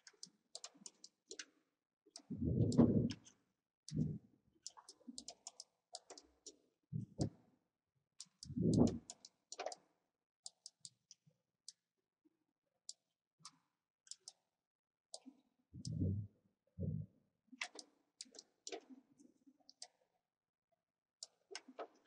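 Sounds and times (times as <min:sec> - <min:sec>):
computer mouse clicking: 0:00.0 - 0:07.3, 0:08.2 - 0:11.8, 0:12.9 - 0:14.4, 0:15.1 - 0:16.2, 0:17.6 - 0:18.9, 0:21.2 - 0:22.0.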